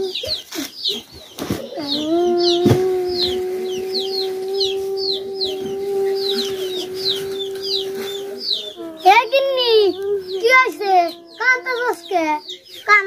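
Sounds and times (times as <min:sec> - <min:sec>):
chicks peeping: 0:00.0 - 0:13.0
long steady tone: 0:02.1 - 0:12.0.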